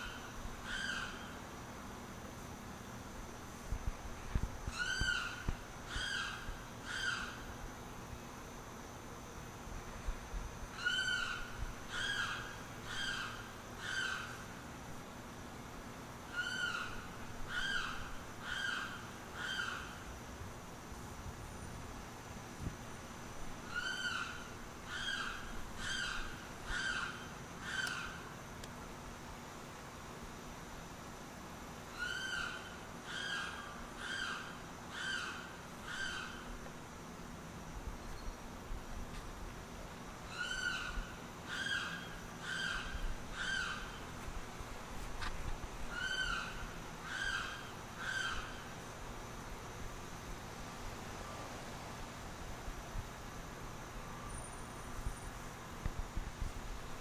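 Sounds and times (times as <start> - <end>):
limpkin calling: 4.7 - 7.4, 10.7 - 14.4, 16.3 - 20.0, 23.7 - 28.3, 31.9 - 36.5, 40.3 - 44.1, 45.9 - 48.7.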